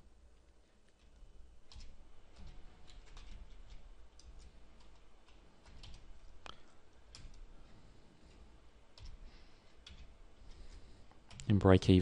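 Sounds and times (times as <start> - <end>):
keyboard keys clicking: 0.9 - 6.5, 8.9 - 9.2, 9.8 - 10.2, 11.2 - 11.6.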